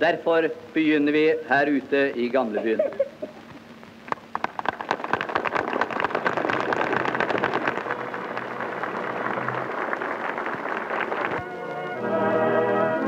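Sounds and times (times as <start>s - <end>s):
crowd applauding: 4.1s - 12.0s.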